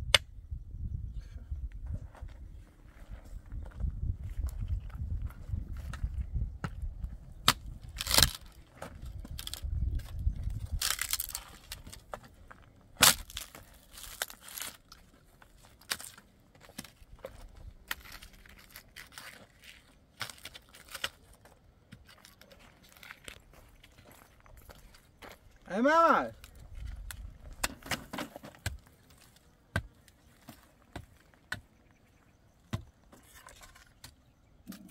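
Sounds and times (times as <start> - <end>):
clatter of things handled: 26.8 - 29.4.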